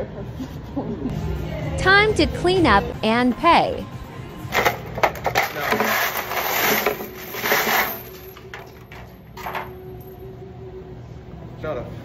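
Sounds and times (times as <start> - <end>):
coins clattering onto wooden table: 4.6 - 10.1.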